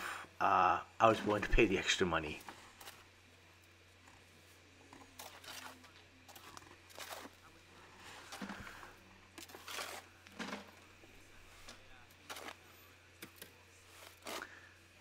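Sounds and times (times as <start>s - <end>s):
tool scraping concrete mix: 5.2s - 7.5s, 8.2s - 10.6s, 14.0s - 14.6s.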